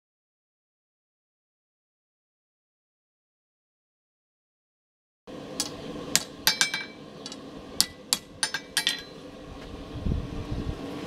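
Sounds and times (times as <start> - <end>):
hammer striking steel on anvil: 5.6 - 9.2.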